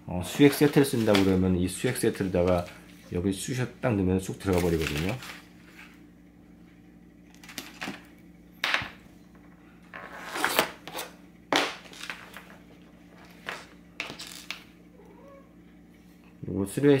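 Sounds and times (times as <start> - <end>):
plastic bag crinkling: 4.4 - 5.5.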